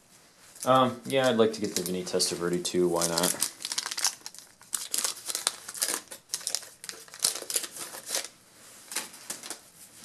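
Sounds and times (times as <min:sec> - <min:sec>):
trading cards and wrappers rustling: 0:00.5 - 0:09.7.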